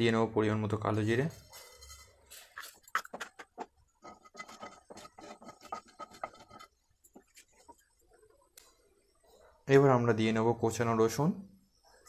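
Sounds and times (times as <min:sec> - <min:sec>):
spatula scraping frying pan: 0:01.4 - 0:07.8.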